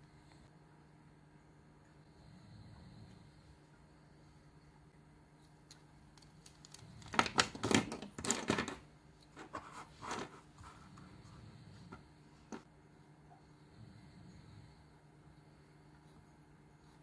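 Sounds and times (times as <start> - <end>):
plastic pens clattering on desk: 6.2 - 8.8.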